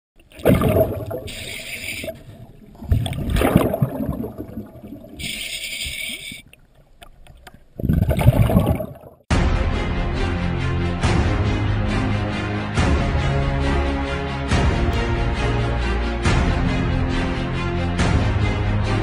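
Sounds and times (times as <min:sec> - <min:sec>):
bubbly gurgling exhalations: 0:00.3 - 0:06.5, 0:07.8 - 0:09.3
regulator hissing inhalations: 0:01.1 - 0:02.4, 0:05.2 - 0:06.4.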